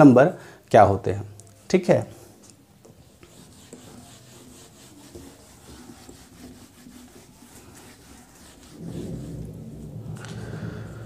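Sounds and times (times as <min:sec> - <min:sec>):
eraser rubbing on whiteboard: 0:02.8 - 0:09.9.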